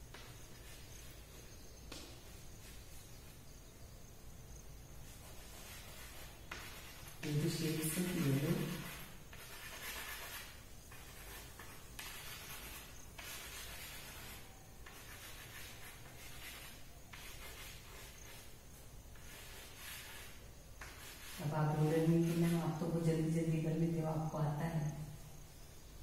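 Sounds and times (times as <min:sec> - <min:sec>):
chalk scratching on chalkboard: 0:00.0 - 0:01.2, 0:05.1 - 0:24.0
woman's voice: 0:21.4 - 0:25.0.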